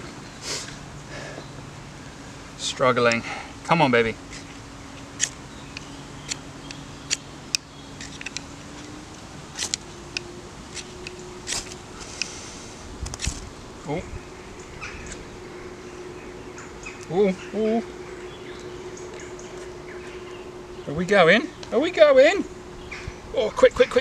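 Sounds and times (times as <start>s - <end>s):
insect buzzing: 3.2s - 23.4s
ferro rod scraping: 10.7s - 13.5s.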